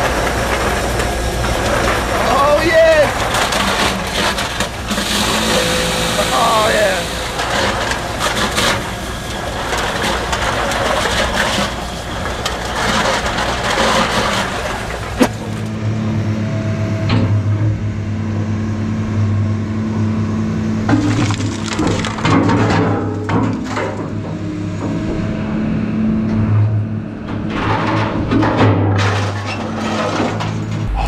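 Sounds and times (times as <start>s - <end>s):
can crusher and blower running: 0.0s - 16.2s, 20.7s - 25.7s
excavator humming: 0.0s - 31.0s
crushed cans rattling: 20.9s - 22.8s.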